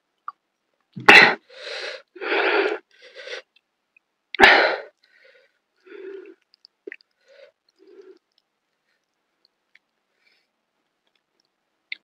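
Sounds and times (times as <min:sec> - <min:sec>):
wheezy breathing: 0:01.3 - 0:03.5, 0:04.4 - 0:06.4.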